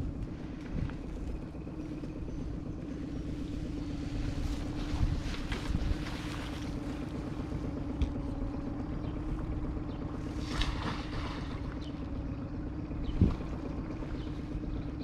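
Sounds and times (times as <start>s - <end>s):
wind buffeting microphone: 0.0s - 12.0s, 12.8s - 14.8s
low hum: 0.0s - 15.0s
leaves rustling: 3.0s - 7.6s.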